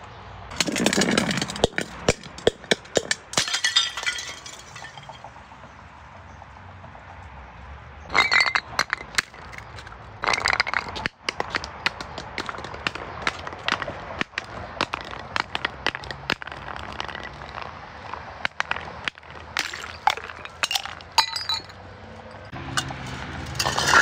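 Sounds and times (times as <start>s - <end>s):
glass bottles breaking: 0.5s - 5.2s, 8.1s - 17.6s, 18.4s - 21.8s, 22.8s - 24.0s
glass shards clinking: 0.5s - 5.2s, 8.1s - 12.7s, 18.4s - 24.0s.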